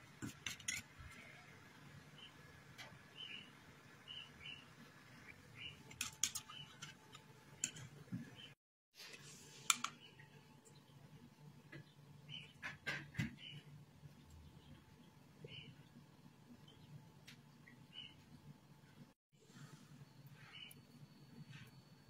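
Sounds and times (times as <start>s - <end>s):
birds chirping: 2.0s - 8.6s, 9.9s - 17.0s, 17.6s - 18.4s.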